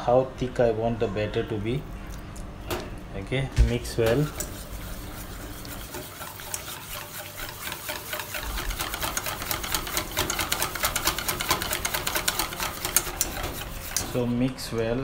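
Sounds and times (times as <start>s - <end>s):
wet batter stirring: 3.6s - 15.0s
whisk clicking against steel bowl: 4.0s - 14.3s.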